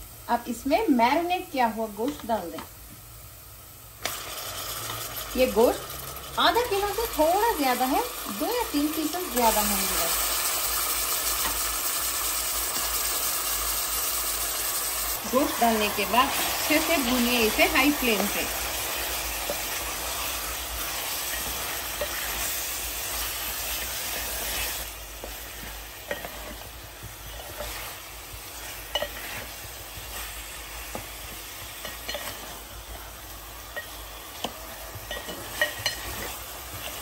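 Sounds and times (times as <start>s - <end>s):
meat sizzling in a pot: 0.0s - 37.0s
spatula scraping and tapping pot: 20.8s - 33.1s, 33.7s - 37.0s.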